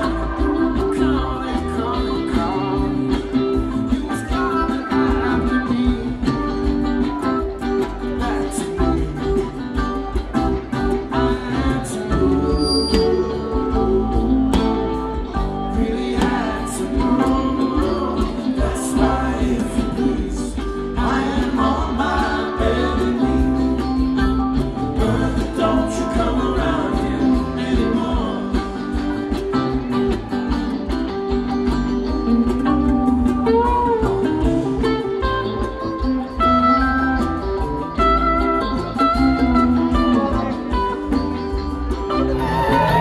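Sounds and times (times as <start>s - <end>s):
person singing: 0.0s - 30.6s, 42.1s - 43.0s
live rock band: 0.0s - 43.0s.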